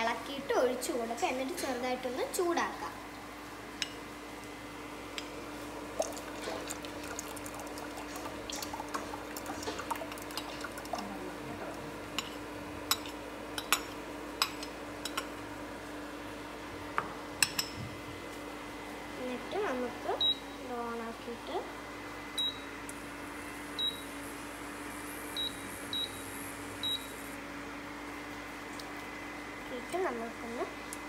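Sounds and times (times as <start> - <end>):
thick mixture pouring: 6.0 - 11.1
spoon stirring in bowl: 8.1 - 11.0.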